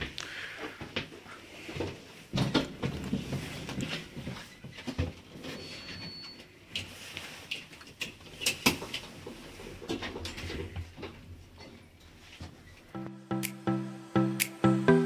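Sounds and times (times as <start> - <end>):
handling knocks and rustling: 1.6 - 5.9
faint high beep: 5.6 - 6.4.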